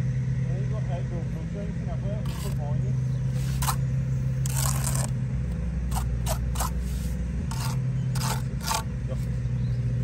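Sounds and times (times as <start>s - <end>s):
low engine hum: 0.0s - 10.0s
trowel scraping wet mortar: 2.2s - 5.2s, 5.9s - 9.3s.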